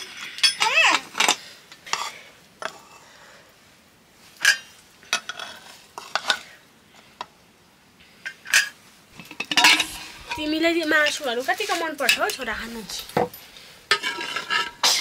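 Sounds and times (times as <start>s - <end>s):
steel utensils clinking: 8.5s - 15.0s.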